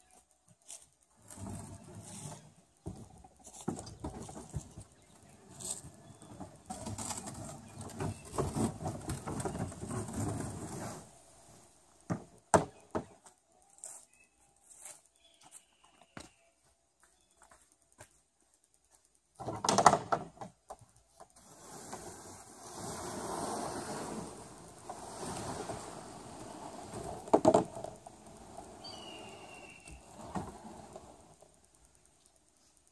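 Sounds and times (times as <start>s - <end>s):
kayak rolling over rollers: 1.1s - 12.9s, 19.4s - 32.2s.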